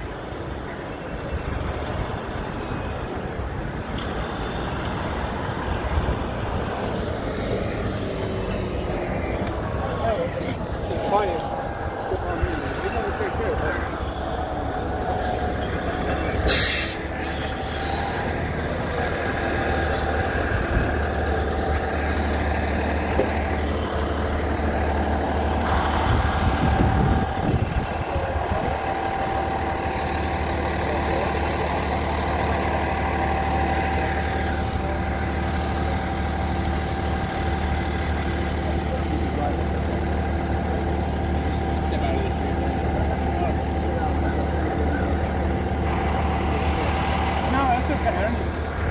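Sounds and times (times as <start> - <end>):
diesel engine idling: 0.0 - 48.9
short hiss of air: 16.5 - 18.2.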